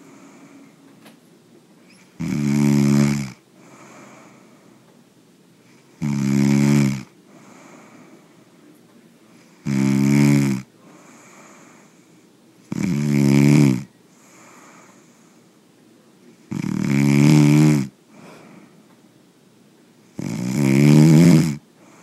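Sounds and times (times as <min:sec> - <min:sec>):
quiet breathing: 0:00.0 - 0:01.1, 0:02.8 - 0:06.0, 0:07.0 - 0:09.7, 0:10.6 - 0:12.7, 0:13.8 - 0:16.5, 0:17.9 - 0:19.1, 0:21.6 - 0:22.0
person snoring: 0:02.2 - 0:04.5, 0:06.0 - 0:08.1, 0:09.5 - 0:12.0, 0:12.7 - 0:15.3, 0:16.5 - 0:18.4, 0:20.2 - 0:22.0.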